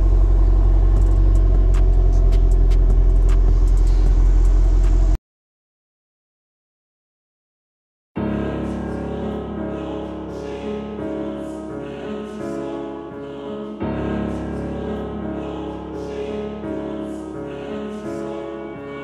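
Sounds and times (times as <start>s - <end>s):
held chords over deep bass: 0.0s - 5.2s.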